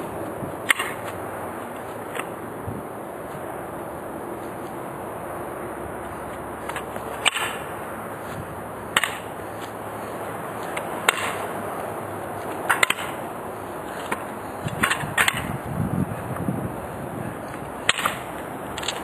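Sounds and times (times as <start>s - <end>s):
sharp cracks or slaps: 0.7s - 1.2s, 6.7s - 7.7s, 8.9s - 9.3s, 10.7s - 11.5s, 12.7s - 13.2s, 17.8s - 19.0s.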